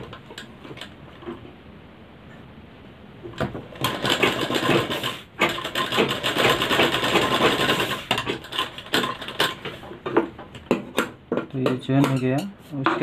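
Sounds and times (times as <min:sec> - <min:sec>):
sewing machine clatter: 0:03.4 - 0:09.9.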